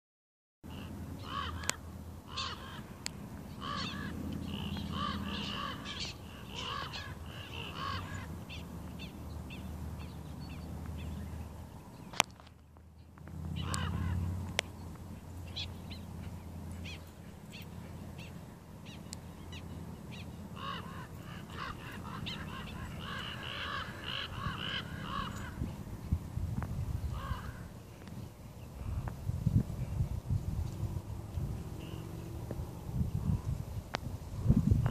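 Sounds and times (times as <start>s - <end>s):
prairie dogs barking alarm calls: 0.7s - 11.4s, 13.0s - 25.9s, 26.9s - 29.2s
low steady rumble: 0.7s - 34.9s.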